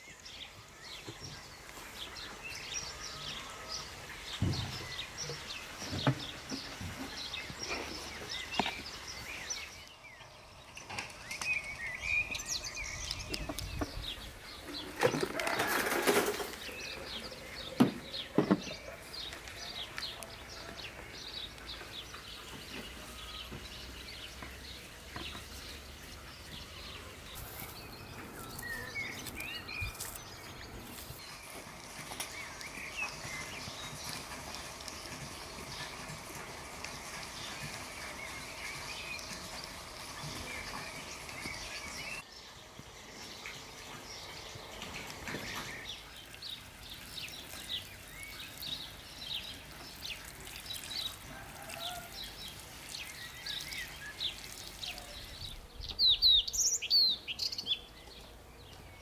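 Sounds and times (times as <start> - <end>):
small birds chirping: 0.0 - 59.0
hands rustling soil in pots: 11.1 - 55.4.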